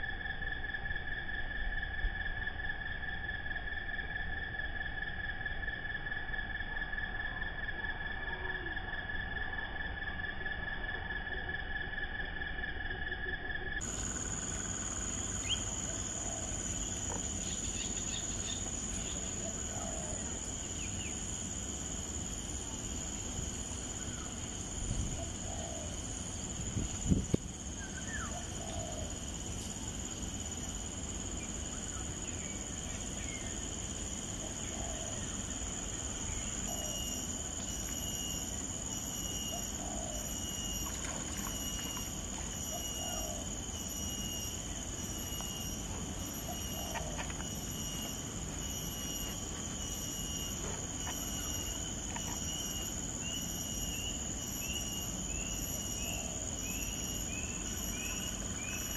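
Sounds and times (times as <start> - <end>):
steady wetland noise: 0.0 - 58.9
faint animal calls: 46.2 - 48.1.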